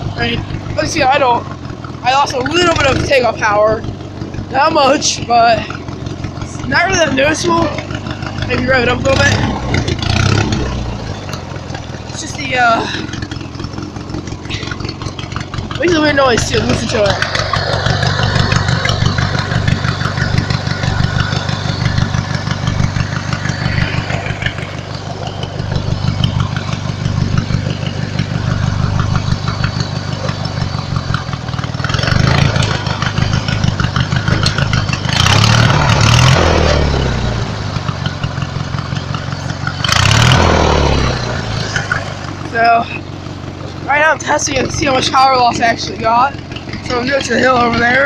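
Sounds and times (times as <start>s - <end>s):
lawnmower engine idling and revving: 0.0s - 48.0s.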